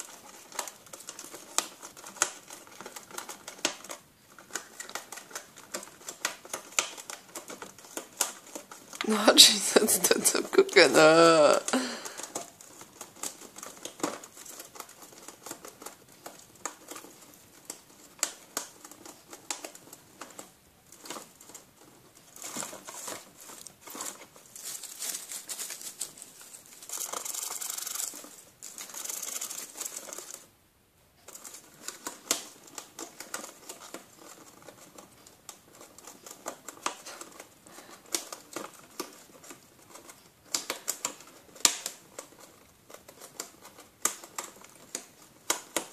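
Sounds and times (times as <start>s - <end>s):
gerbil gnawing cardboard: 0.0s - 30.6s, 31.2s - 45.9s.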